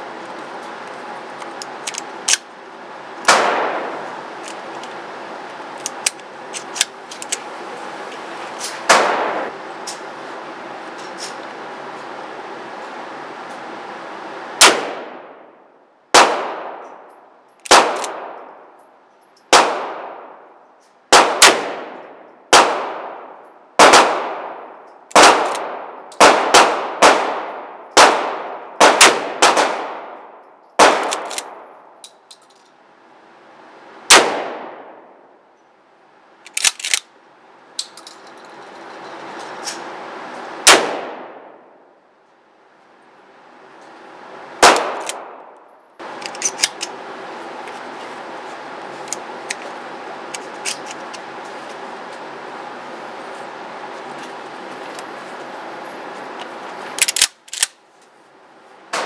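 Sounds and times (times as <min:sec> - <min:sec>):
gunshots with ringing echo: 0:03.3 - 0:04.0, 0:21.1 - 0:31.8.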